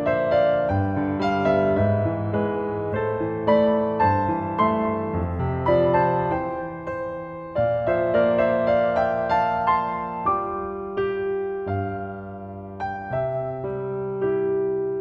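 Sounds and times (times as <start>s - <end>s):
slow solo piano music: 0.0s - 15.0s.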